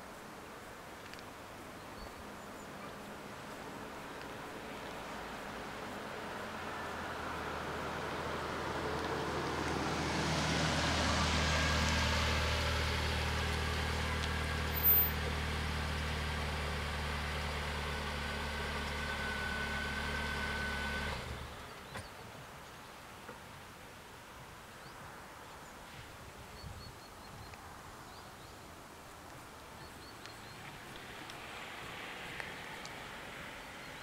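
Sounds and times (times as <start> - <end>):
car driving up: 4.6 - 22.1.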